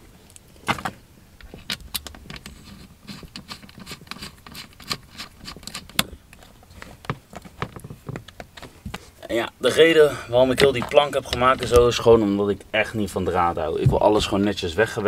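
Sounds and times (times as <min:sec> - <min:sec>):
clicks and taps handling cables: 0:05.7 - 0:09.0, 0:10.5 - 0:12.0.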